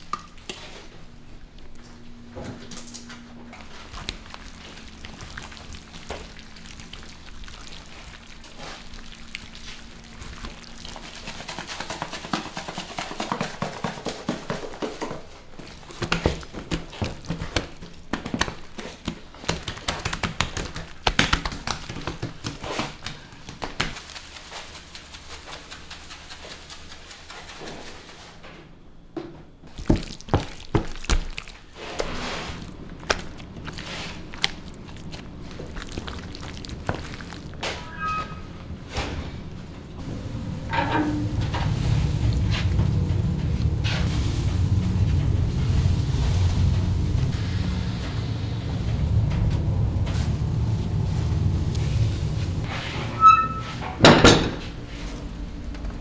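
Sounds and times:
faint low hum: 0:39.3 - 0:52.7.

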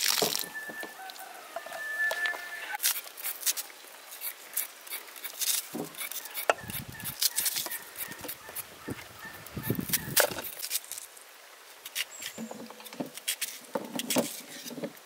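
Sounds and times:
knife slicing onion: 0:04.2 - 0:08.7.

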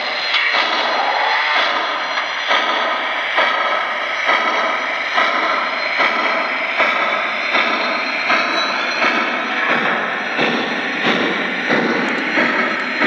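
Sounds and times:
steam hiss from speaker: 0:00.0 - 0:07.0
steam locomotive chuffing: 0:00.0 - 0:13.0.

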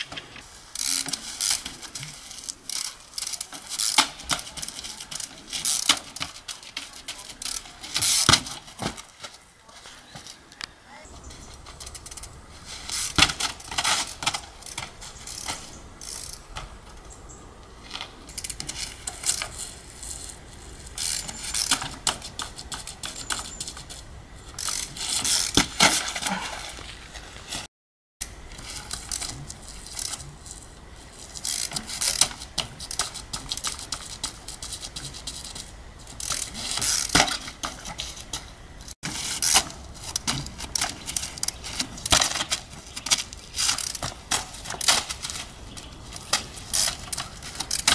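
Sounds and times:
freewheel ratchet clicking: 0:21.0 - 0:21.9, 0:31.3 - 0:34.4.

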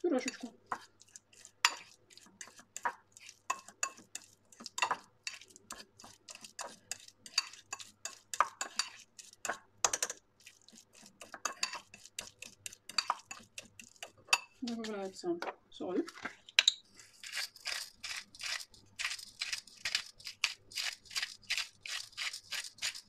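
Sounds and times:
fork scraping and tapping a bowl: 0:00.2 - 0:14.9.

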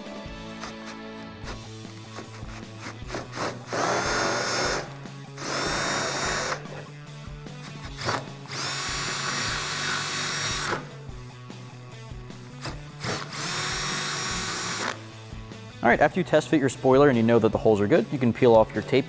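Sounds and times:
power drill boring through metal: 0:00.5 - 0:06.9, 0:07.6 - 0:11.0, 0:12.6 - 0:15.0.

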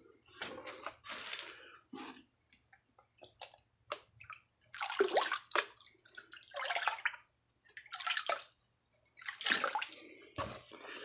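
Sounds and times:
water sloshing in a plastic pan: 0:03.1 - 0:10.8.

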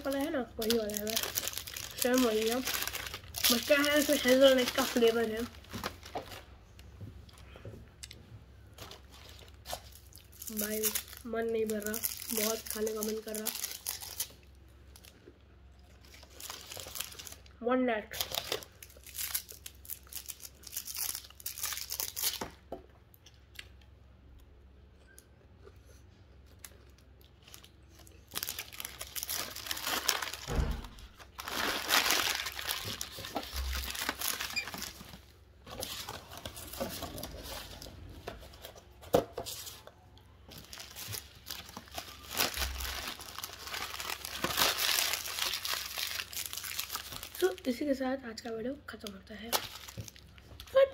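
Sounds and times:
foil wrappers crinkling and tearing: 0:00.0 - 0:06.5, 0:08.8 - 0:15.1, 0:16.0 - 0:17.5, 0:18.1 - 0:22.6, 0:26.6 - 0:38.7, 0:40.5 - 0:48.0, 0:49.3 - 0:50.9.

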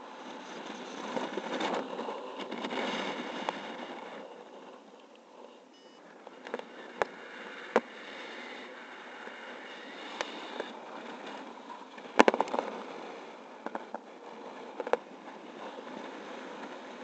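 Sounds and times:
rush of air in flight: 0:00.0 - 0:17.0
sharp clicks and crackles: 0:10.0 - 0:17.0.

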